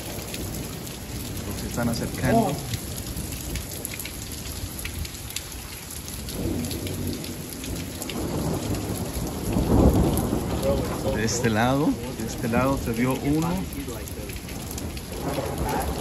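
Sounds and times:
rain pattering: 0.0s - 16.0s
low roll of thunder: 6.0s - 16.0s.

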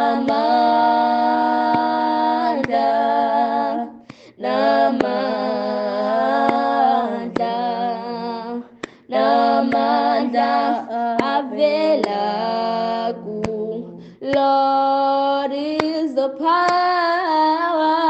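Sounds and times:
woman singing hymn: 0.0s - 18.0s.

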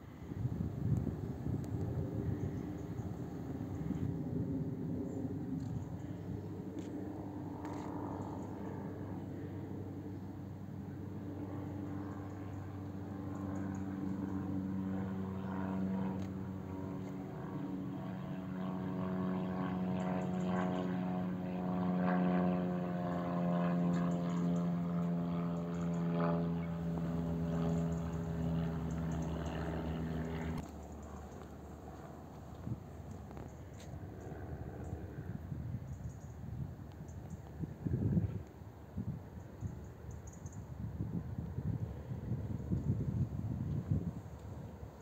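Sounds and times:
distant engine droning: 0.0s - 45.0s.

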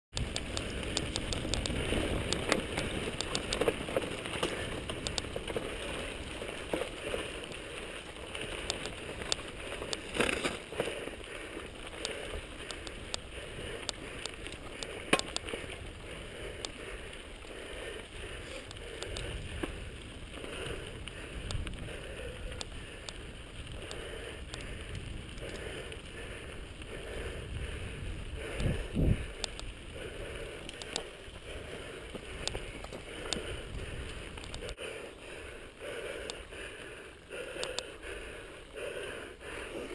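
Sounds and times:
tyres crunching on gravel: 0.1s - 26.8s, 27.9s - 34.8s
bike frame and chain rattling: 0.2s - 26.8s.

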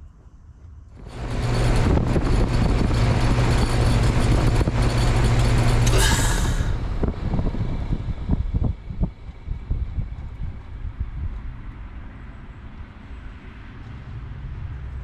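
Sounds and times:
compressor hum: 0.7s - 11.0s
refrigerant rushing hiss: 5.8s - 6.8s.

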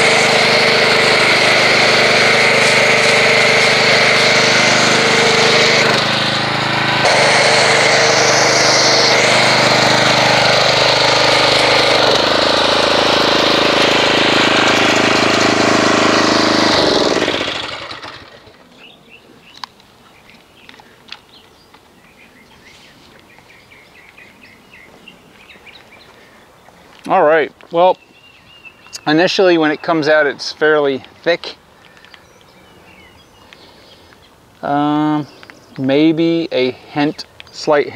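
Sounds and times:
pressure washer running: 0.0s - 18.6s.

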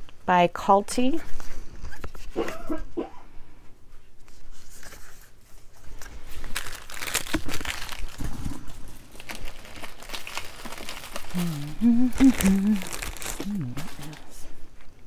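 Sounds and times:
packaging crinkling: 5.9s - 14.6s.

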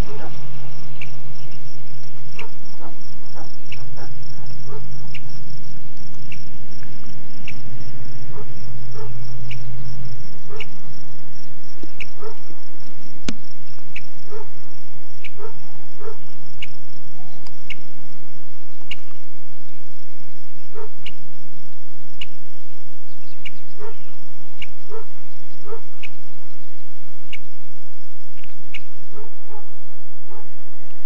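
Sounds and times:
fainter lower chirps: 0.0s - 18.0s
low hum: 0.0s - 31.0s.

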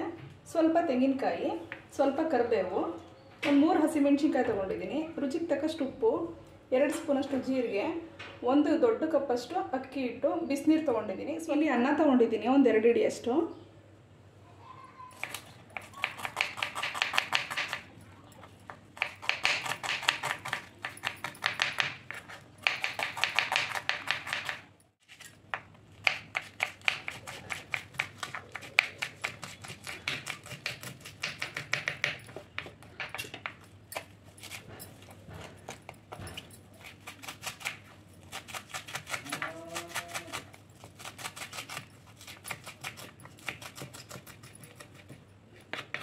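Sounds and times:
knife chopping on wooden board: 15.2s - 17.9s, 19.0s - 24.6s, 25.5s - 46.0s.

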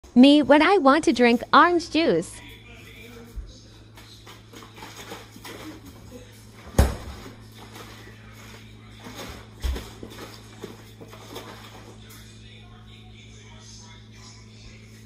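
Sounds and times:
low steady hum: 0.0s - 15.0s
refrigerator door shutting: 6.7s - 7.2s.

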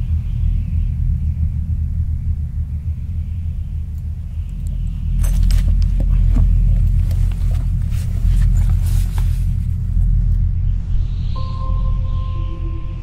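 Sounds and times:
deep steady rumble: 0.0s - 13.0s
loose rock clinking and clattering: 4.0s - 9.3s.

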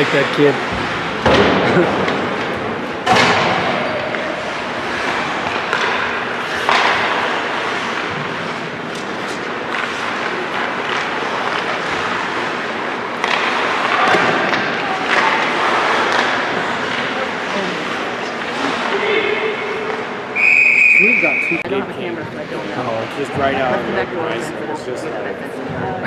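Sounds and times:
puck and sticks knocking boards: 0.7s - 17.0s
skates scraping on ice: 4.2s - 17.5s.

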